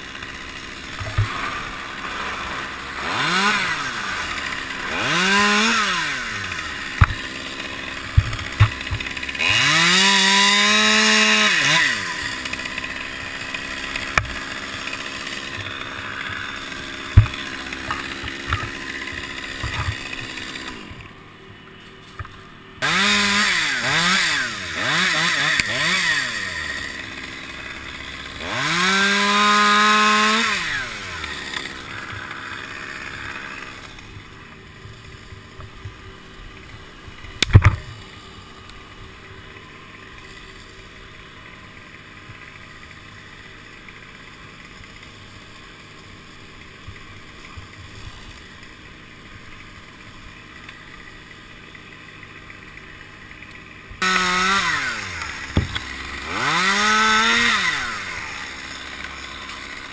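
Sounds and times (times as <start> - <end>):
chainsaw revving: 0.0 - 59.9
sharp knocks: 55.5 - 55.8.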